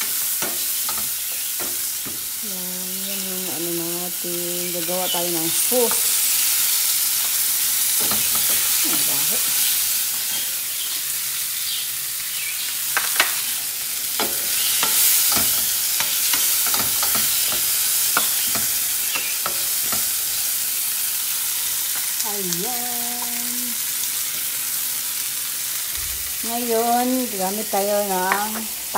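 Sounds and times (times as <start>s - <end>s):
spatula scraping and tapping pan: 0.0s - 2.3s, 8.0s - 9.1s, 14.2s - 20.2s
vegetables sizzling in oil: 0.0s - 28.9s.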